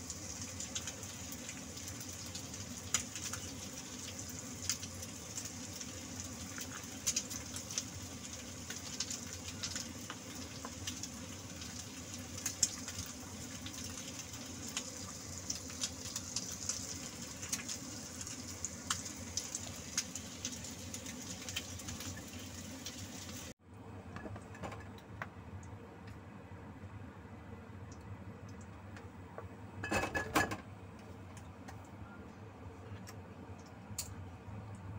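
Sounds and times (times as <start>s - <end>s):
broth boiling and bubbling: 0.0s - 23.6s.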